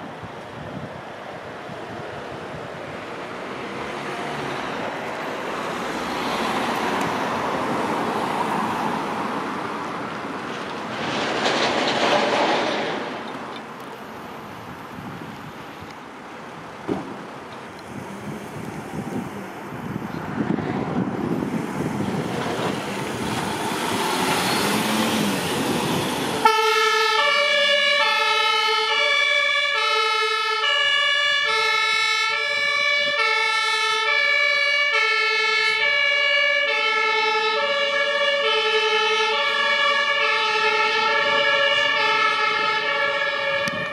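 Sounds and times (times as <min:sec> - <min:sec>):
van engine and wind noise: 0:00.0 - 0:26.7, 0:31.4 - 0:34.2, 0:41.1 - 0:43.9
two-tone siren: 0:26.4 - 0:43.9.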